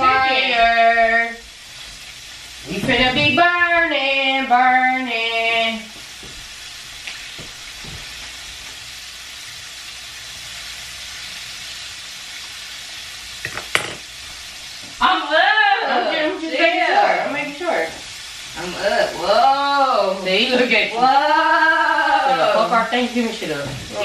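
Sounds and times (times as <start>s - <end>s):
person singing: 0.0s - 1.4s, 2.7s - 5.9s
food sizzling in a pan: 0.0s - 24.0s.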